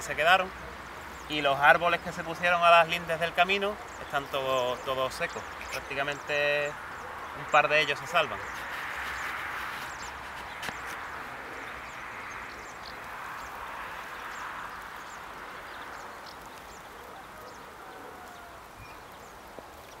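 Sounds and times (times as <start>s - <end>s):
high falling bird chirps: 0.0s - 20.0s
chorus of animal calls: 11.1s - 19.4s.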